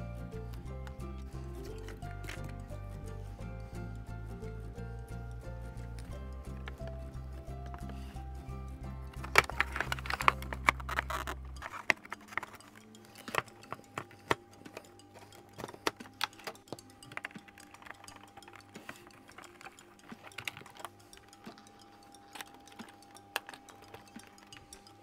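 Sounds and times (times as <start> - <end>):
quiet background music: 0.0 - 25.0
plastic parts clicking: 1.7 - 2.7, 9.1 - 25.0.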